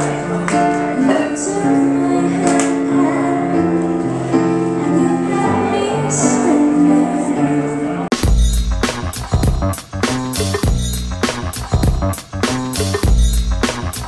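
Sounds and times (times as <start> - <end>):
woman singing into a microphone: 0.0 - 7.8
electronic keyboard chords: 0.0 - 14.0.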